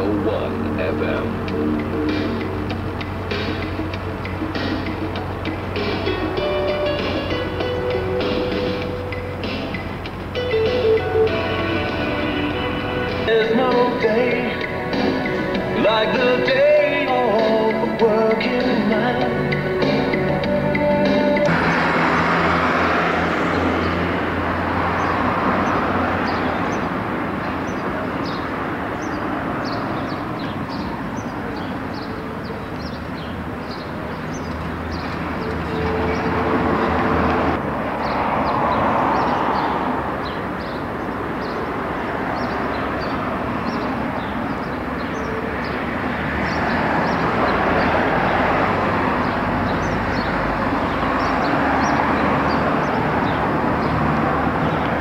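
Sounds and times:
cars passing: 0.0s - 55.0s
small birds chirping: 23.7s - 36.4s, 38.0s - 48.4s, 49.2s - 55.0s.

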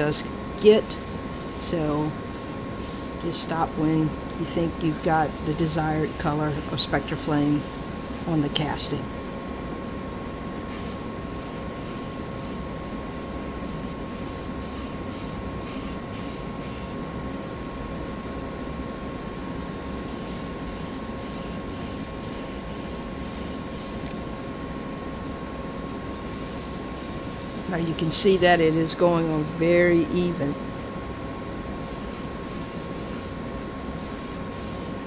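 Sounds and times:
exhaust fan humming: 0.0s - 35.0s
spray paint hissing: 0.8s - 3.2s, 5.3s - 8.3s, 10.7s - 12.6s, 13.6s - 17.0s, 20.1s - 24.1s, 26.2s - 28.5s, 31.8s - 33.4s, 34.0s - 35.0s.

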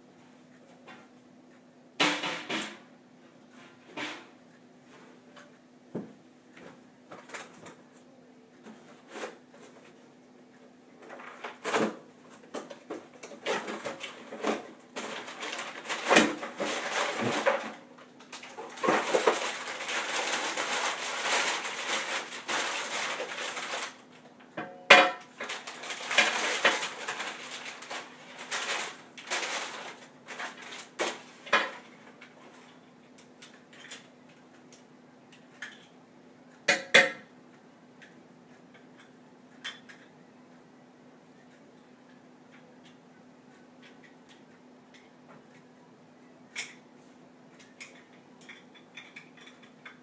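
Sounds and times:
faint steady hum: 0.0s - 50.0s
paper wrapping crinkling: 13.3s - 24.2s, 25.3s - 32.7s.

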